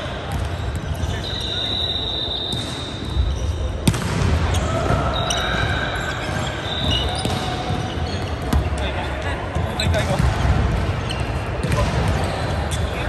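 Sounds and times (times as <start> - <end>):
shoe squeaks: 0.5 - 3.8, 4.5 - 8.8, 11.0 - 11.5
sharp ball hit: 3.8 - 4.4.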